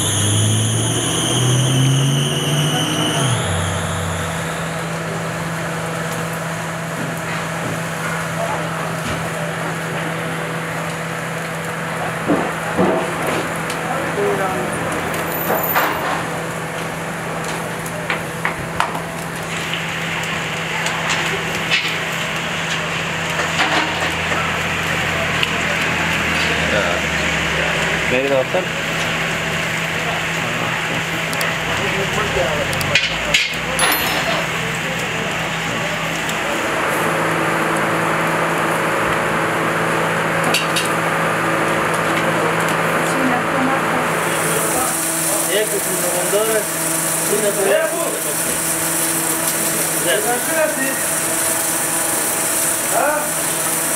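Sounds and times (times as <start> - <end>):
loud even hiss: 0.0 - 6.5, 44.1 - 53.9
low hum: 0.0 - 6.9
kebabs sizzling on charcoal grill: 0.0 - 53.9.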